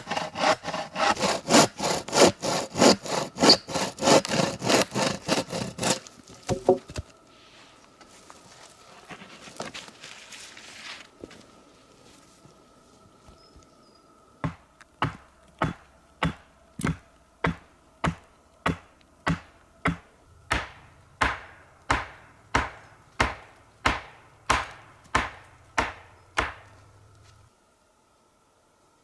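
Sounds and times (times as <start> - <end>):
axe chopping wood: 5.8 - 7.0, 14.4 - 26.7.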